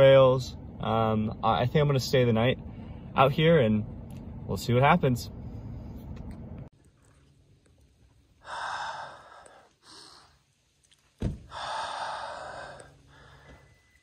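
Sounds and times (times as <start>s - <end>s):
heavy breathing: 8.4s - 10.5s, 11.4s - 13.9s
dull thump: 11.2s - 11.6s.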